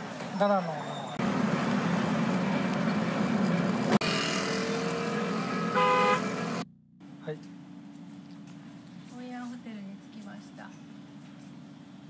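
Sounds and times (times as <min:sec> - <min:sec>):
car engine and road noise: 0:00.0 - 0:12.0
car horn: 0:04.0 - 0:06.6.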